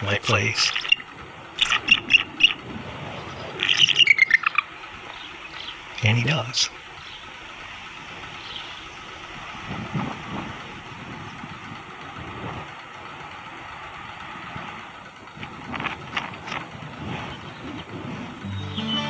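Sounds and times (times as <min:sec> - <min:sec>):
wind rushing on microphone: 0:09.6 - 0:12.7.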